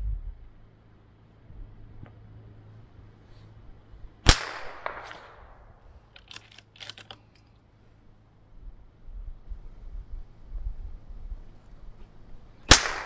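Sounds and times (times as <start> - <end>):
rifle shot echoing: 4.2 - 5.8, 12.7 - 13.0
rifle bolt clicks: 6.1 - 7.5.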